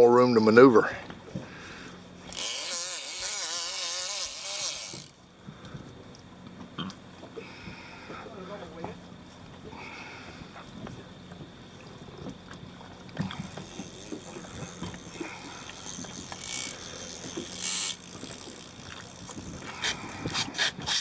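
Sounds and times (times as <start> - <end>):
boat engine humming: 0.0 - 21.0
rods and reels clicking: 13.4 - 19.9.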